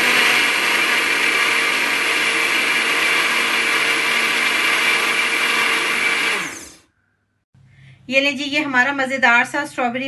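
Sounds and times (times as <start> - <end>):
blender motor whine: 0.0 - 6.9.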